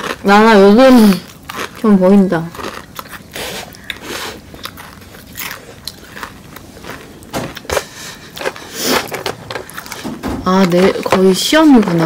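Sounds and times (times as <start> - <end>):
biting and chewing: 0.0 - 12.0.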